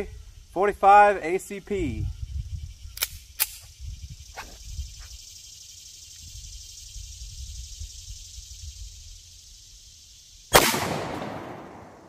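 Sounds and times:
pistol shot with echo: 10.5s - 12.0s.

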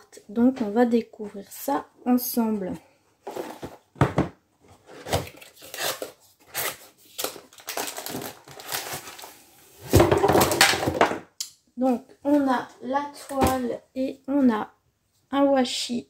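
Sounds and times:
plastic wrap rustling and crinkling: 4.7s - 11.0s.

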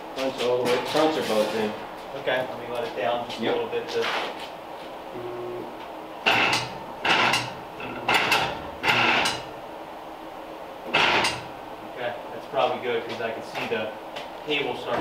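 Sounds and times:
car lift clunks: 6.3s - 9.5s, 10.9s - 11.6s.

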